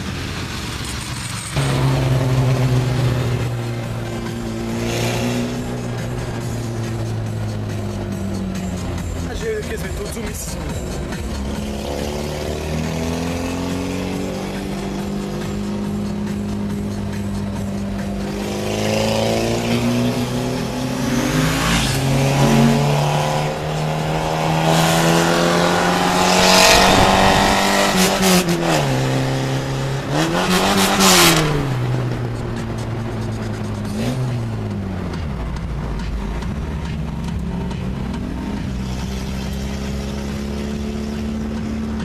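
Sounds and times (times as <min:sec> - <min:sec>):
car engine running under load: 0:00.0 - 0:42.0
rush of exhaust and wind: 0:14.0 - 0:39.7.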